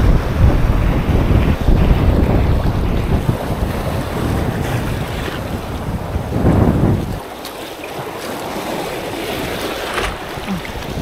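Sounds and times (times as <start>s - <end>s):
waves surging on shore: 0.0s - 11.0s
wind buffeting microphone: 0.0s - 11.0s.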